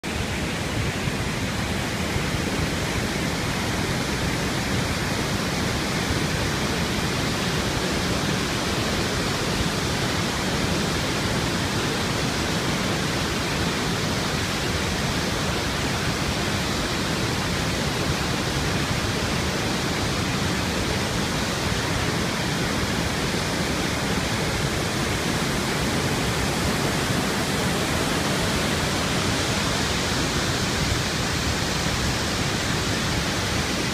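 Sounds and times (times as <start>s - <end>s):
waterfall rushing: 0.0s - 33.9s.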